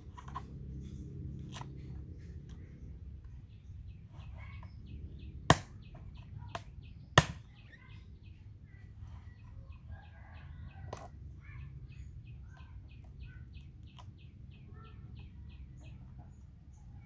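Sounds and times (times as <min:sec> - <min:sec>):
bird chirping: 0:00.0 - 0:17.0
cleaver striking coconut: 0:05.4 - 0:07.5.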